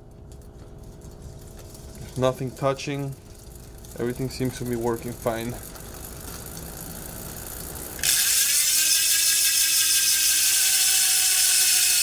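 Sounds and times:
freehub ratchet buzz: 0:08.0 - 0:12.0.

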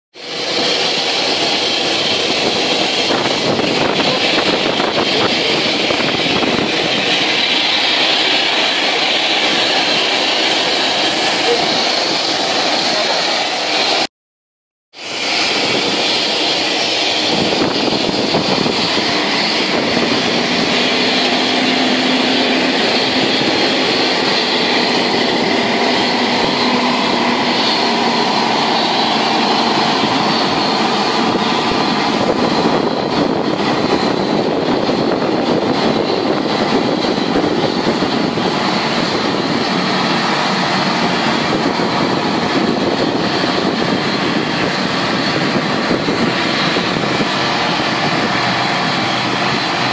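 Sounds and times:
jet engine whine: 0:00.1 - 0:14.1, 0:14.9 - 0:49.9.

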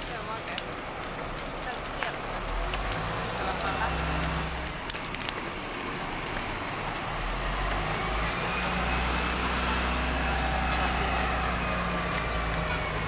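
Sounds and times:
thin high squeal: 0:08.4 - 0:10.1.

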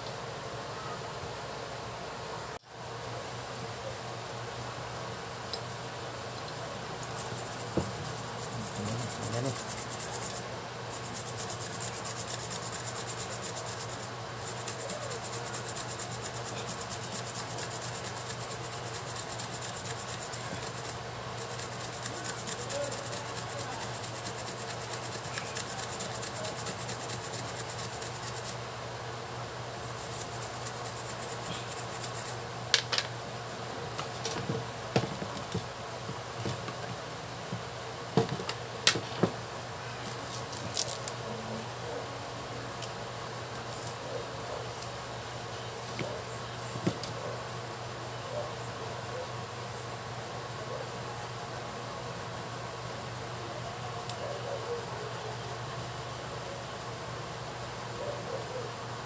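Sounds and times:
brush scrubbing circuit board: 0:07.1 - 0:28.6, 0:29.8 - 0:32.4.

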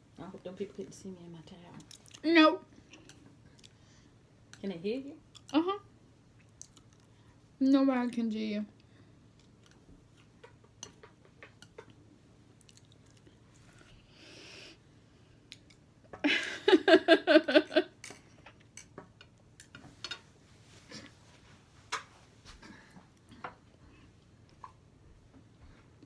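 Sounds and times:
faint chewing: 0:01.7 - 0:05.7, 0:06.3 - 0:07.4, 0:08.8 - 0:14.1.

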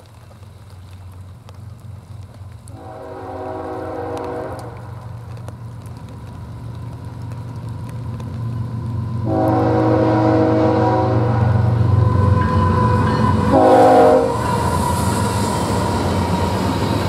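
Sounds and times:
diesel engine rumble: 0:00.0 - 0:17.0
locomotive horn blasts: 0:02.8 - 0:04.8, 0:09.2 - 0:11.6, 0:12.4 - 0:14.4.

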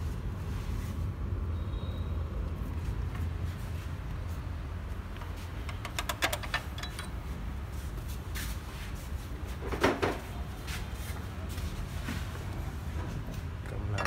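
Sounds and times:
hand tools clicking on metal: 0:05.2 - 0:07.2.

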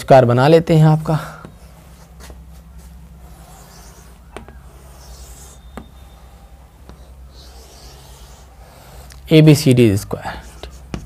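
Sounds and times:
low steady hum: 0:00.0 - 0:11.0
chalk scraping on chalkboard: 0:01.6 - 0:11.0
chalk tapping on board: 0:03.3 - 0:06.1, 0:06.8 - 0:08.4, 0:10.4 - 0:11.0.

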